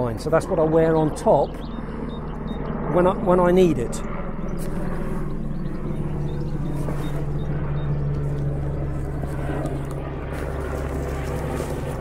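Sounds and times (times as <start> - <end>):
helicopter rotor and engine drone: 0.0 - 12.0.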